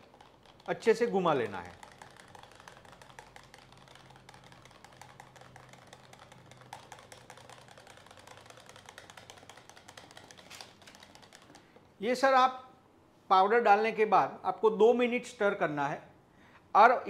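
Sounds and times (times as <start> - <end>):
whisk ticking against plastic jug: 0.0 - 11.9.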